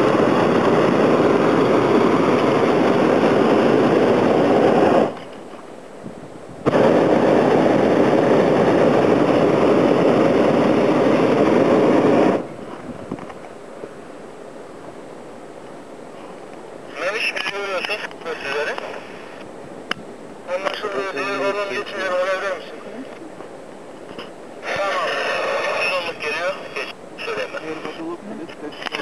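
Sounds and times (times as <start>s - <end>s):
propane burner blast: 0.0s - 5.3s, 6.6s - 13.1s.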